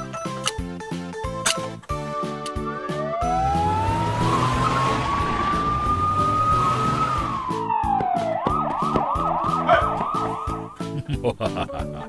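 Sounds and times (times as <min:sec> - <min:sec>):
police siren wailing and yelping: 0:02.6 - 0:10.8
background music with steady beat: 0:07.1 - 0:12.0.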